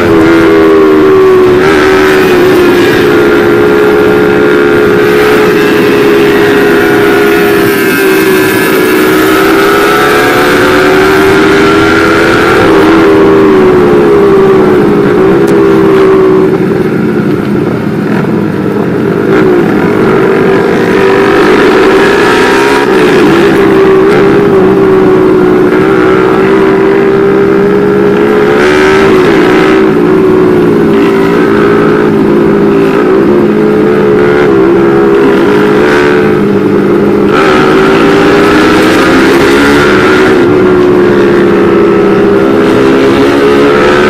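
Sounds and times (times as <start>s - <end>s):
motorcycle engine at high revs: 0.0s - 44.0s.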